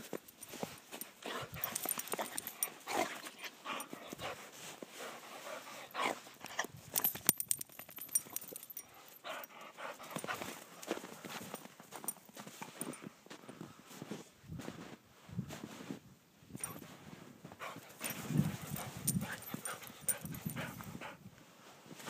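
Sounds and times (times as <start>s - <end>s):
claws clicking and scuffling: 1.3s - 3.3s.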